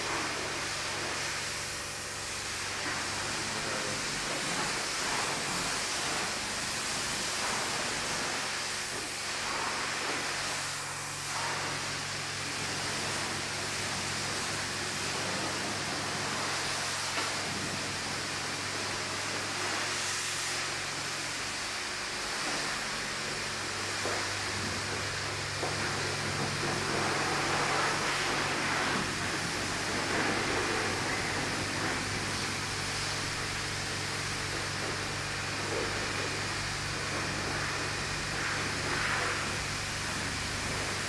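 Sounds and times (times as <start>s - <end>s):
pressure washer spraying car: 0.0s - 41.0s.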